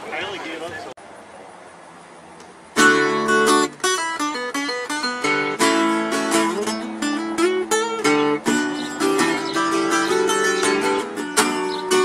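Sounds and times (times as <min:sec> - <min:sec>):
acoustic guitar playing: 0:02.7 - 0:12.0.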